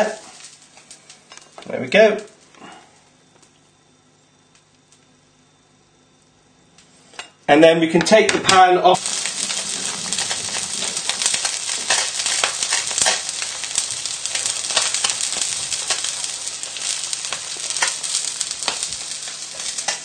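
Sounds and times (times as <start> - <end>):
crackling pops: 8.4 - 20.0
fish sizzling in a frying pan: 9.0 - 20.0.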